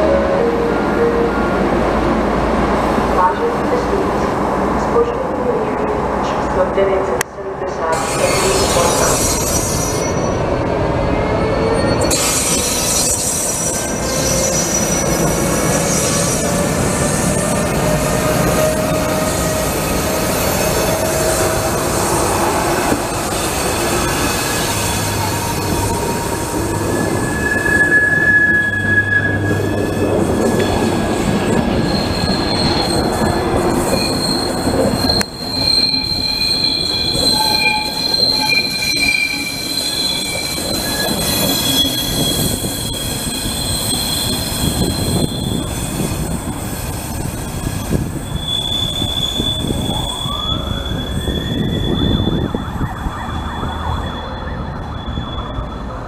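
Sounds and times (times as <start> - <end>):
train wheels rumbling on rails: 1.4 - 56.0
high-pitched wheel squeals: 8.0 - 10.4, 11.3 - 16.6, 23.3 - 46.3, 47.1 - 55.9.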